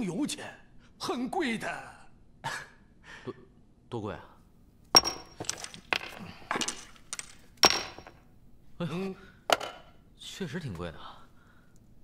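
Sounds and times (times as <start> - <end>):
coins clinking: 5.0 - 8.2.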